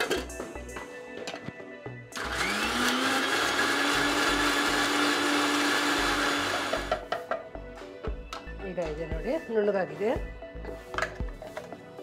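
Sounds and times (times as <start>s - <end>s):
mixer grinder motor whining: 2.1s - 7.0s.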